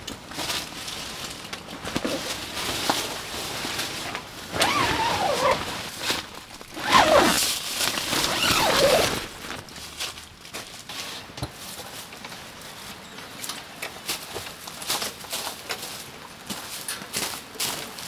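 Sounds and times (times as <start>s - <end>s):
tent fabric rustling: 0.3s - 12.1s
zipper being drawn: 4.5s - 9.6s.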